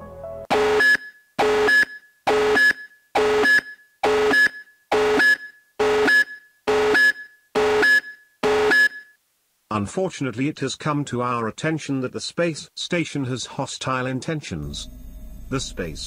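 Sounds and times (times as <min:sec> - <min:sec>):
chord-like electronic alarm beeps: 0:00.5 - 0:09.2.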